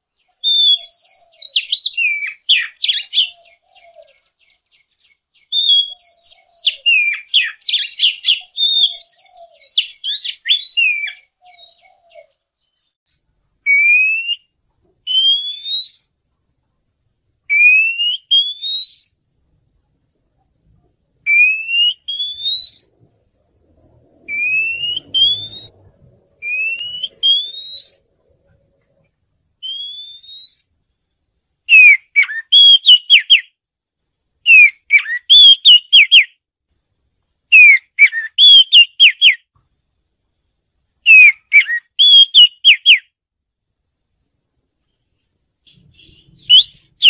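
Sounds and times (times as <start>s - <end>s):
bird singing whistled phrases: 0.2s - 12.3s, 13.7s - 14.5s, 15.1s - 16.1s, 17.5s - 19.1s, 21.3s - 22.9s, 24.3s - 25.8s, 26.4s - 28.0s, 29.6s - 30.7s, 31.7s - 33.5s, 34.5s - 36.3s, 37.5s - 39.5s, 41.1s - 43.1s, 45.7s - 47.0s.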